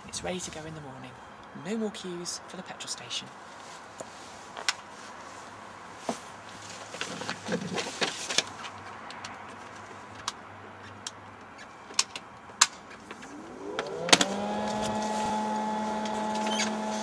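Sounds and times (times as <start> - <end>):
charger humming and whirring: 13.0 - 17.0.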